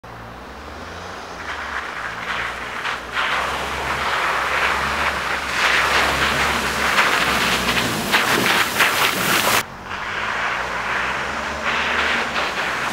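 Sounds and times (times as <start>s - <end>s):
off-road vehicle engine: 0.0s - 12.9s
tyres splashing through mud: 0.0s - 12.9s.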